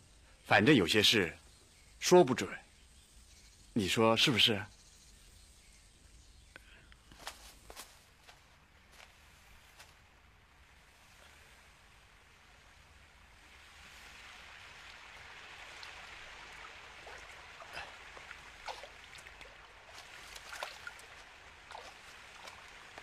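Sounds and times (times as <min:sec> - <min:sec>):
running water trickling: 0:10.6 - 0:23.0.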